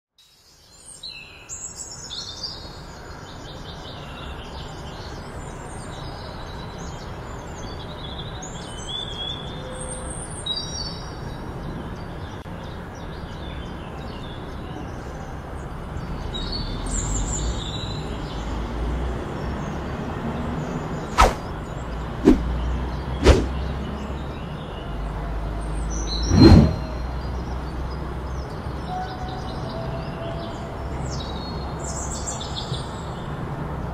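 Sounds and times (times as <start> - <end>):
birds chirping: 0.4 - 33.8
loud thump: 23.2 - 23.5.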